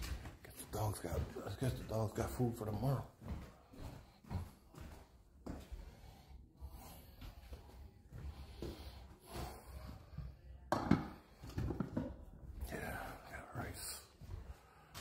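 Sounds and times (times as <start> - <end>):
man breathing heavily and snorting: 3.2 - 11.7, 13.8 - 15.0.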